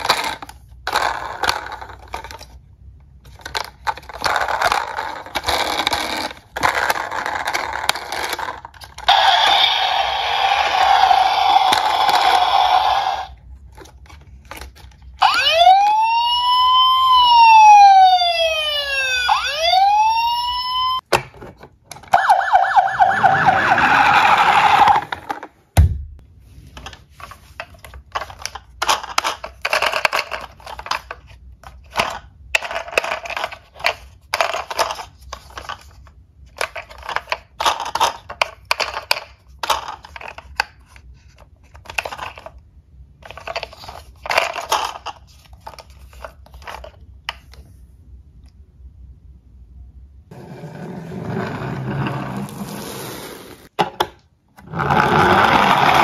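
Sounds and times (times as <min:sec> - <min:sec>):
toy cars rattling in box: 0:03.3 - 0:12.9
toy ambulance siren: 0:09.1 - 0:13.3, 0:15.2 - 0:21.0, 0:22.1 - 0:25.0.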